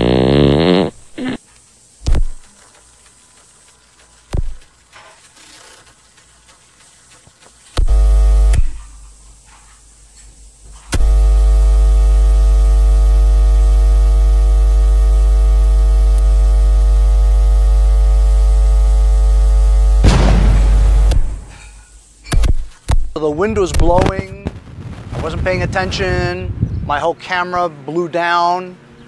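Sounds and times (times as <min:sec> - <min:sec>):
loud electrical buzz: 0:00.0 - 0:03.5, 0:04.2 - 0:06.1, 0:07.1 - 0:26.3.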